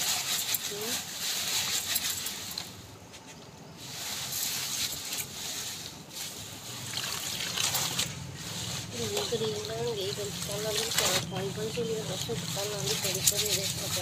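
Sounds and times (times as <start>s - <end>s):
clothes sloshing in water: 4.6s - 14.0s.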